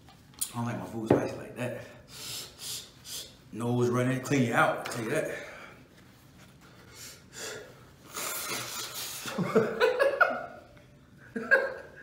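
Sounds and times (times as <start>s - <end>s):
man blowing his nose: 2.1s - 3.4s, 6.8s - 9.5s
man sniffing: 2.1s - 3.4s, 6.9s - 9.4s.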